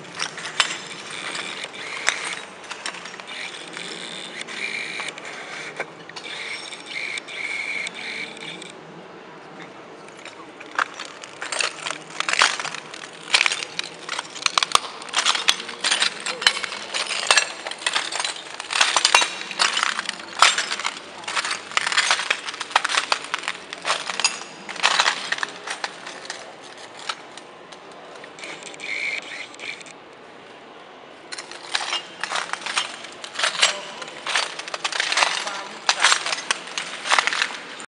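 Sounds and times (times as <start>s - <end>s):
glass crunching underfoot: 0.0s - 8.7s, 10.0s - 30.0s, 31.3s - 37.9s.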